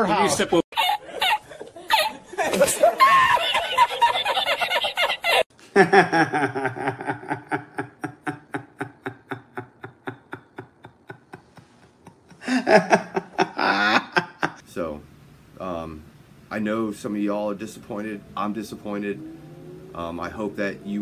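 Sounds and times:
man cackling laugh: 0:00.7 - 0:14.6
man laughing in rhythmic pulses: 0:00.7 - 0:14.6.

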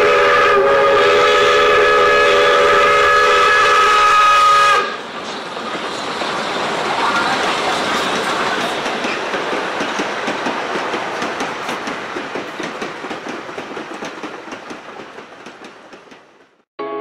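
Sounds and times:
train rumble: 0:00.0 - 0:16.7
train wheels clicking on rail joints: 0:03.5 - 0:16.6.

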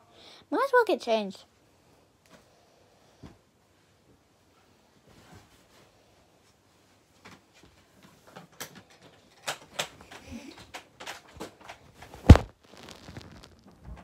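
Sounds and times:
loud thump: 0:12.2 - 0:12.5.

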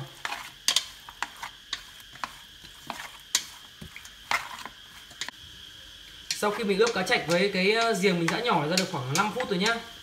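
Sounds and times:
chopsticks clicking against metal bowl: 0:06.2 - 0:09.9.

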